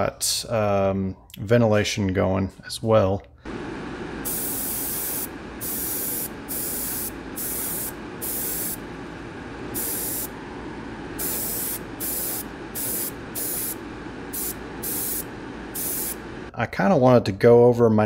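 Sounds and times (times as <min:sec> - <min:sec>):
steady background noise: 0:03.5 - 0:16.6
airbrush hissing bursts: 0:04.2 - 0:08.8, 0:09.7 - 0:10.4, 0:11.2 - 0:16.3.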